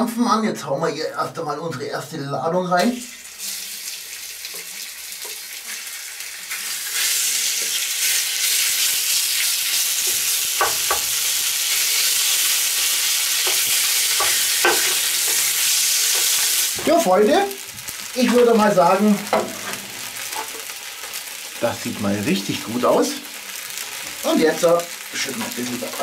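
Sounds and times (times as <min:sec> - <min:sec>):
meat sizzling in a pot: 0:02.8 - 0:26.0
wooden spoon knocking on pot: 0:10.6 - 0:11.1, 0:13.4 - 0:15.0.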